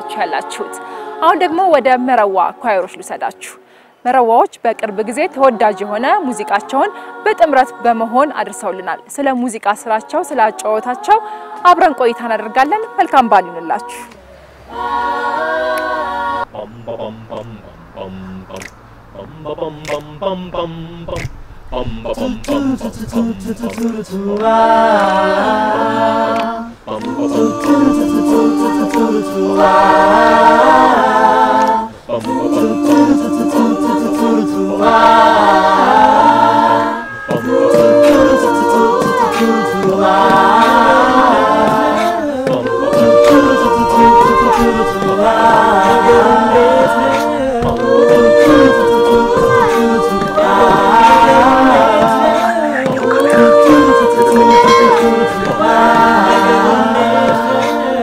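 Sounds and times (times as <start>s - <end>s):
a cappella group singing in harmony: 0.0s - 58.0s.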